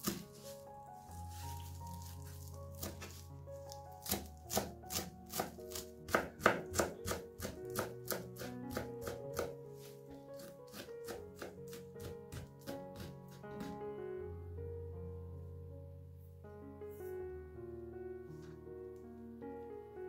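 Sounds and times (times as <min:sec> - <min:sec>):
knife chopping on cutting board: 0:00.0 - 0:00.5, 0:01.3 - 0:03.2, 0:04.0 - 0:13.8
soft background music: 0:00.0 - 0:20.0.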